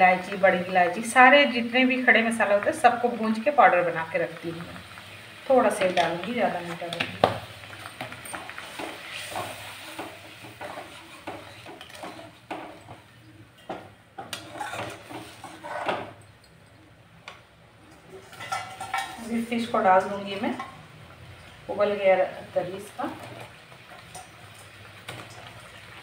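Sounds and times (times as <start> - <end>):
gravy sizzling: 0.0 - 26.0
spoon scraping and clinking on pan: 13.6 - 16.8, 18.0 - 19.4.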